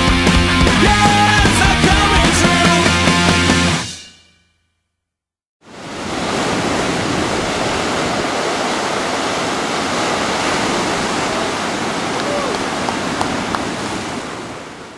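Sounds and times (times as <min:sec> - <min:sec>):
rock music: 0:00.0 - 0:04.3
ocean surf breaking: 0:05.6 - 0:14.9.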